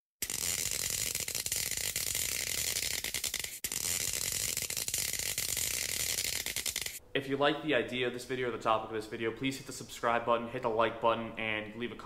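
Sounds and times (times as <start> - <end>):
electric crackling and buzzing: 0.2 - 7.0.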